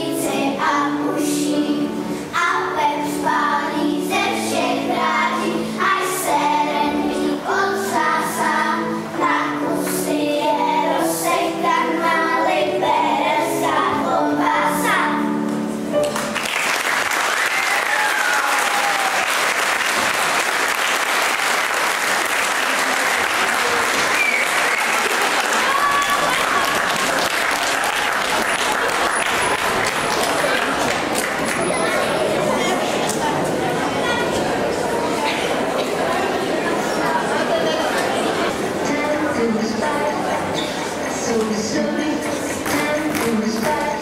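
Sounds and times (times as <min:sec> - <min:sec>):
children singing together: 0:00.0 - 0:16.0
instrumental accompaniment: 0:00.2 - 0:16.6
audience applause: 0:16.0 - 0:33.3.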